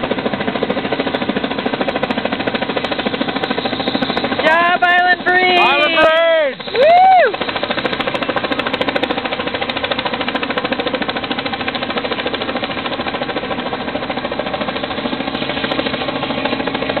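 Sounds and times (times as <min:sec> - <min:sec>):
helicopter rotor chop: 0:00.0 - 0:17.0.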